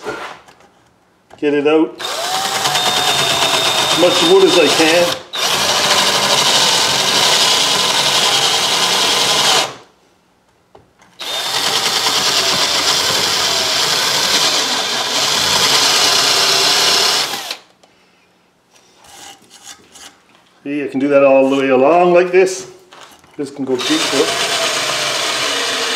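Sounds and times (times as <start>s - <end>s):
electric drill boring into wood: 2.0s - 9.8s, 11.2s - 17.7s, 23.8s - 25.9s.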